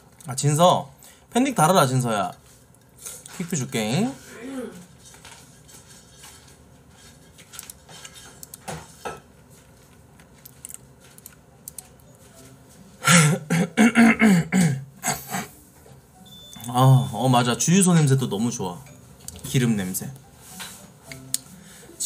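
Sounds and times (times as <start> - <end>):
dishes and cutlery clinking: 5.1 - 9.4
person speaking: 16.6 - 20.3.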